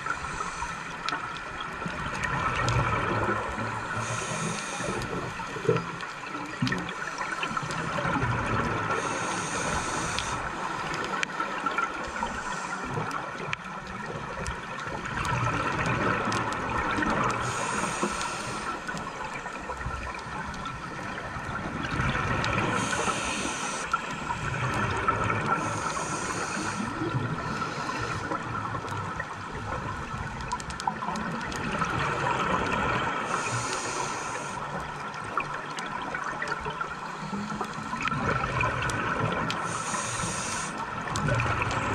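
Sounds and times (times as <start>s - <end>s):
diver breathing through regulator: 0.0s - 1.2s, 4.0s - 5.5s, 8.9s - 10.9s, 11.9s - 13.2s, 17.3s - 19.1s, 22.6s - 24.8s, 25.4s - 28.5s, 33.1s - 34.7s, 39.6s - 40.9s
underwater gurgling and bubbling: 0.0s - 41.9s.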